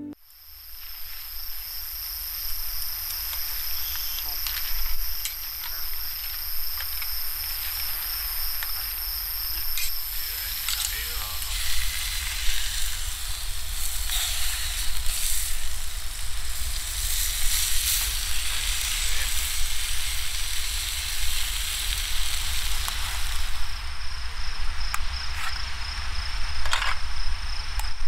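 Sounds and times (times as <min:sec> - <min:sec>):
broad steady hiss: 0:00.1 - 0:28.0
insects trilling: 0:00.2 - 0:28.0.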